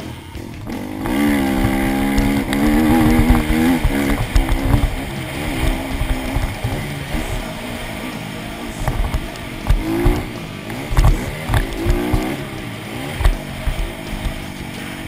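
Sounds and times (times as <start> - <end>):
dirt bike engine revving: 0.0 - 15.0
bump noise: 0.6 - 12.5.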